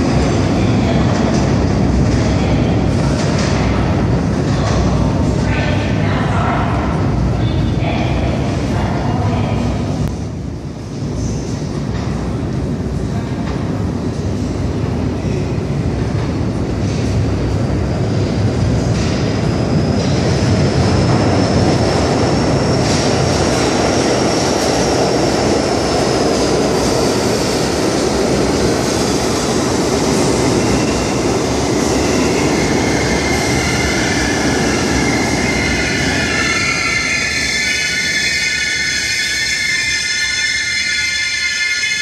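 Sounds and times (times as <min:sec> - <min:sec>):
train wheels rumbling on rails: 0:00.0 - 0:42.0
train wheel squeal: 0:32.1 - 0:42.0.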